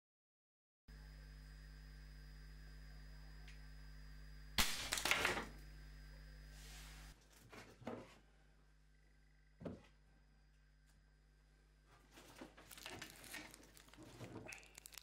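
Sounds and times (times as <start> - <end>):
air rifle shot: 4.6 - 5.0
wrapper rustling and knocks: 12.1 - 15.0.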